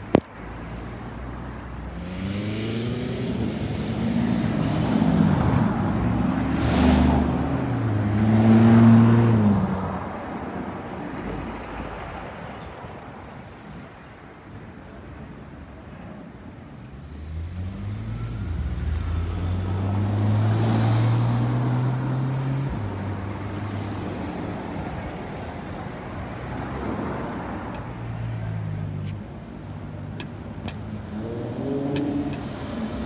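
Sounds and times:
sports car accelerating past: 1.9 - 9.9, 17.2 - 24.0, 30.9 - 33.0.

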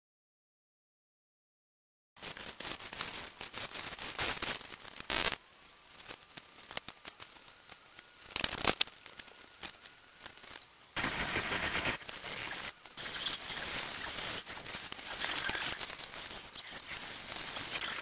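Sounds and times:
paint brushes scratching canvas: 11.0 - 13.2.

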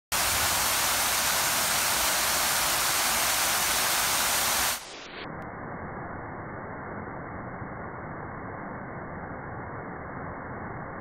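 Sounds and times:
fountain water splashing into pool: 0.1 - 4.8.

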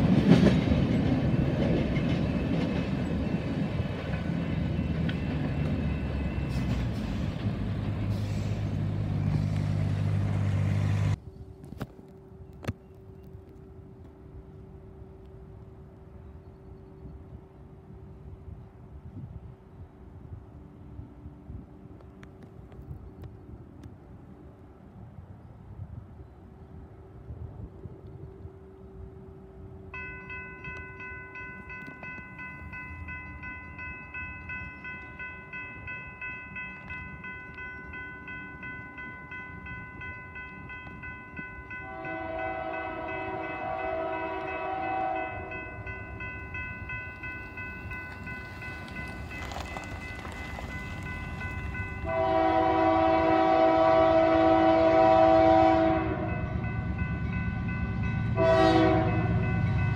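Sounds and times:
low train rumble: 0.0 - 59.9
crossing warning bell ringing: 29.9 - 59.9
locomotive air horn blasts: 41.7 - 45.6, 52.0 - 56.6, 58.4 - 59.9.

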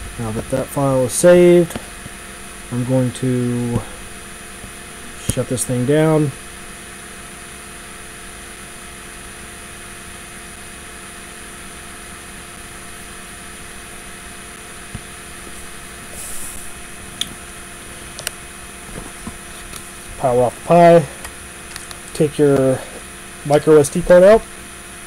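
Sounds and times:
electrical hum: 0.0 - 25.0
faint fan-like hiss: 0.0 - 25.0
burst of high hiss: 12.6 - 23.5.

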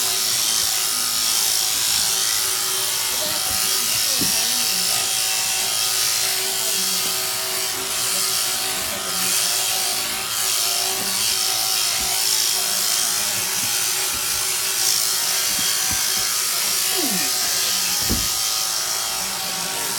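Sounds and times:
sheep shearing handpiece buzzing: 0.0 - 19.9.

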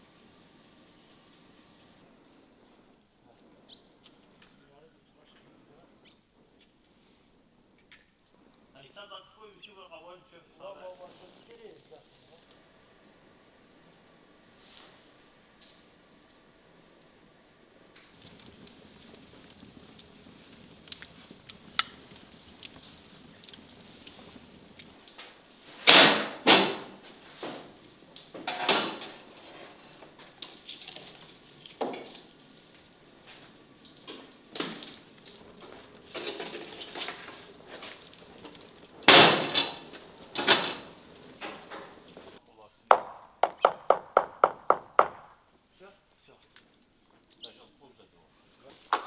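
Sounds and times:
wood fire crackling: 0.0 - 49.0
metal oven door and pan clanking: 28.4 - 29.4, 39.1 - 40.9.

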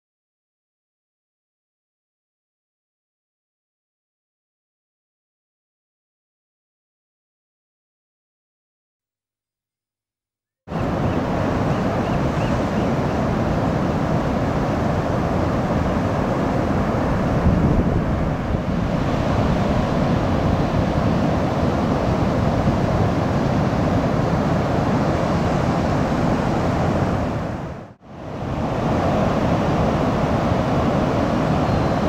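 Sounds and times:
waves breaking: 10.7 - 32.0
wind rumbling on microphone: 10.7 - 32.0.

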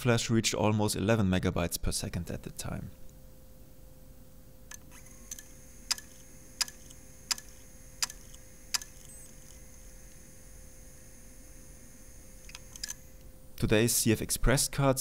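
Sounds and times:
hard disk clicking: 4.7 - 10.2
hard disk spinning whine: 4.7 - 13.8.

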